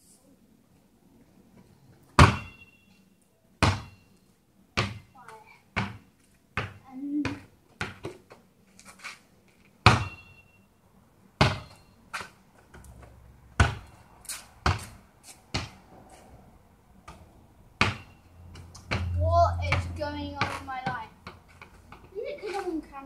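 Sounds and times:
basketball bouncing: 0:02.2 - 0:02.6, 0:03.6 - 0:04.0, 0:04.8 - 0:08.3, 0:09.8 - 0:10.3, 0:11.4 - 0:11.8, 0:12.7 - 0:14.0, 0:14.6 - 0:14.9, 0:15.5 - 0:15.8, 0:17.8 - 0:22.1.

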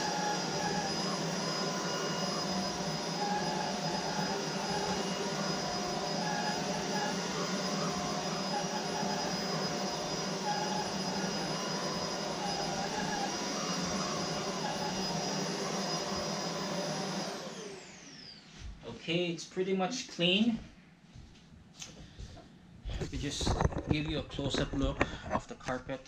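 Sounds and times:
stick vacuum running on rug: 0:00.0 - 0:18.8.

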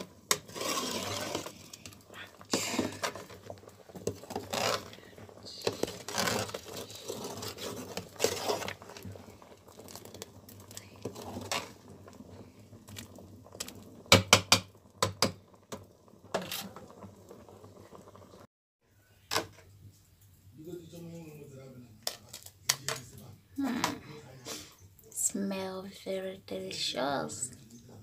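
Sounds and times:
metal spoon scraping a pot: 0:00.0 - 0:11.8.

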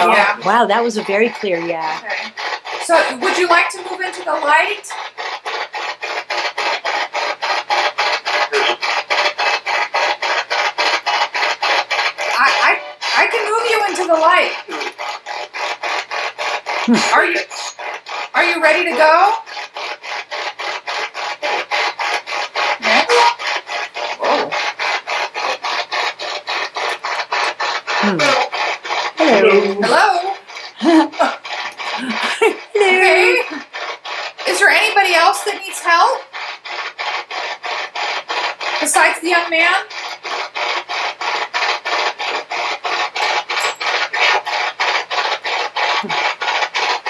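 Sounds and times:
radio voices: 0:00.0 - 0:04.9, 0:18.4 - 0:19.4, 0:28.0 - 0:33.7
rapid static bursts: 0:00.0 - 0:47.0.

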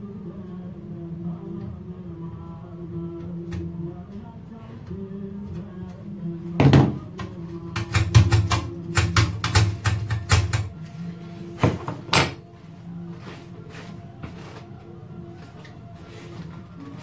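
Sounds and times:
quiet background music: 0:00.0 - 0:17.0
tools set down on wooden bench: 0:11.6 - 0:12.4.

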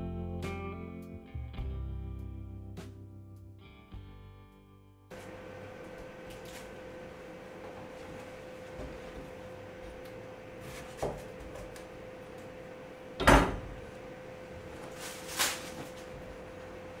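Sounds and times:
faint steady hum: 0:05.1 - 0:17.0.

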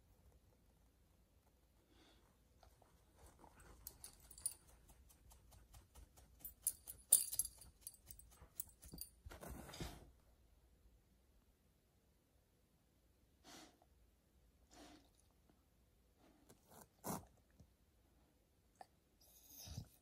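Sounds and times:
dog making clicks and taps: 0:03.4 - 0:09.2.

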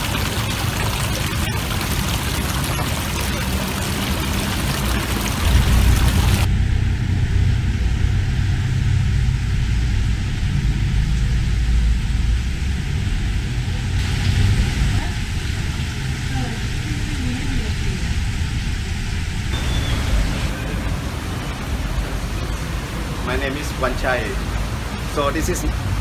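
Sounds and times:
fountain water splashing: 0:00.0 - 0:06.5, 0:13.6 - 0:26.0
steady low rumble: 0:03.4 - 0:26.0.

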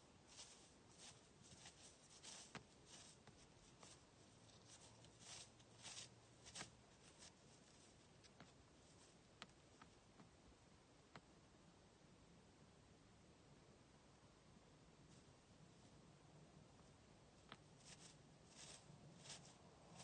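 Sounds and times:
soft rustles: 0:00.0 - 0:10.0, 0:15.0 - 0:16.0, 0:16.8 - 0:20.0.

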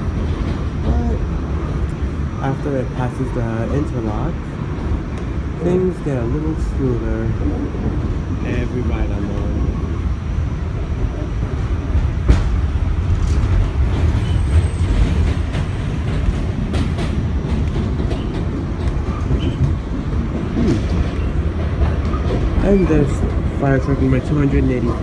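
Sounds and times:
subway train wheels rumbling: 0:00.0 - 0:25.0
wheels clicking over rail joints: 0:11.4 - 0:25.0.

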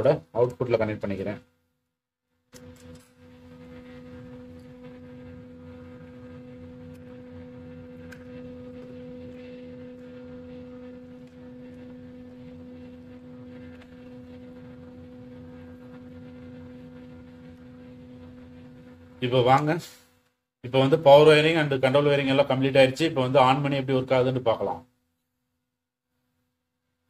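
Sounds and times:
electrical hum of two tones: 0:02.5 - 0:24.3.

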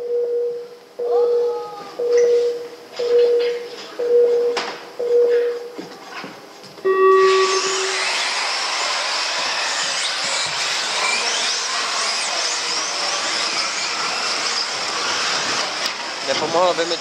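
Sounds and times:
electronic start tone: 0:06.9 - 0:08.4
rc cars motors whirring: 0:07.3 - 0:17.0.

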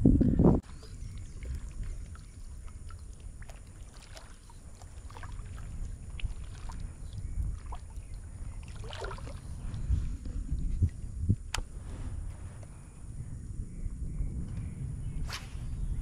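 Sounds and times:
steady low rumble: 0:00.0 - 0:16.0
water swishing against kayak: 0:00.6 - 0:11.1.

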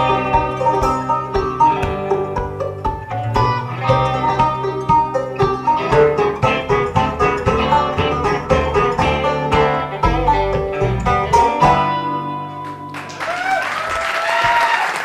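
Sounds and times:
bluegrass banjo bass and guitar: 0:00.0 - 0:13.2
audience applause and whistles: 0:12.6 - 0:15.0.

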